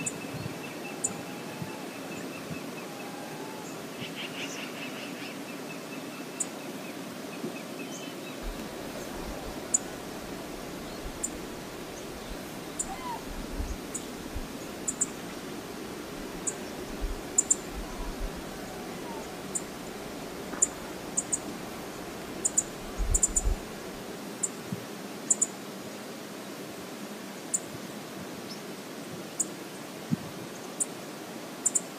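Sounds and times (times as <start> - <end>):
faint bird calls: 0.0 - 6.6, 7.8 - 15.2, 16.4 - 23.6
river water rushing: 5.0 - 30.1
gusty wind rumble: 8.4 - 24.1.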